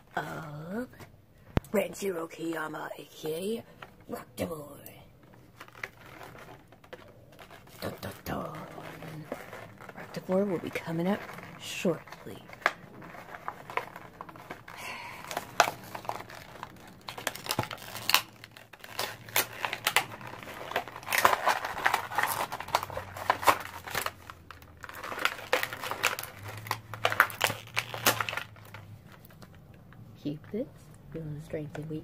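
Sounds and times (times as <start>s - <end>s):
packaging crinkling: 5.2s - 30.0s.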